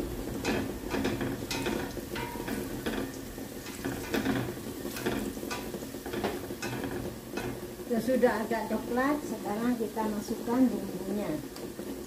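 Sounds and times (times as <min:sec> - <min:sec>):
spatula scraping pot: 0:00.0 - 0:07.8
onions sizzling in oil: 0:00.0 - 0:12.0.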